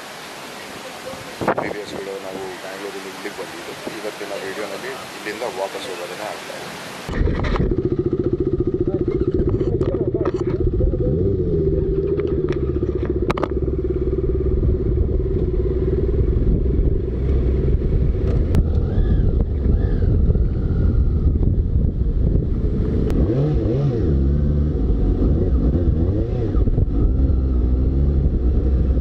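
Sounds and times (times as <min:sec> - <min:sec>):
motorcycle engine idling: 0:07.4 - 0:17.6.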